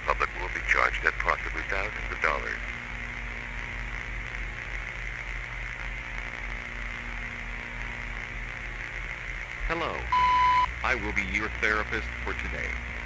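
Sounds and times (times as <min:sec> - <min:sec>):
low electrical hum: 0:00.0 - 0:13.0
static hiss: 0:00.0 - 0:13.0.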